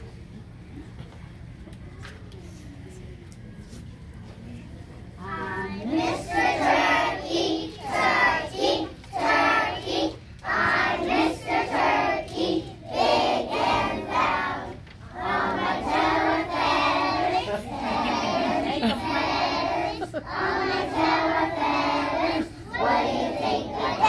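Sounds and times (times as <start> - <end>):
children singing together: 5.6 - 24.0.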